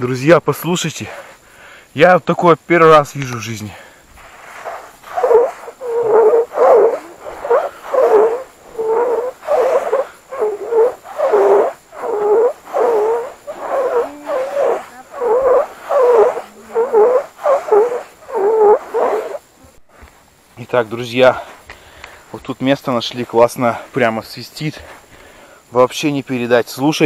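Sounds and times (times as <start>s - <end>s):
singing sand squeaking: 2.7s - 19.8s.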